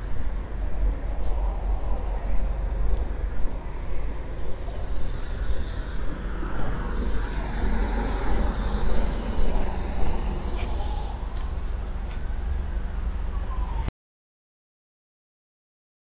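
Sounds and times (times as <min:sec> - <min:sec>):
traffic rumble: 0:00.0 - 0:13.9.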